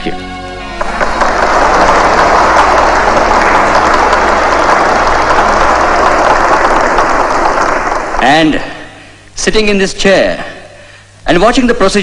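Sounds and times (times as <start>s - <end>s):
crowd applauding: 0.6s - 9.0s.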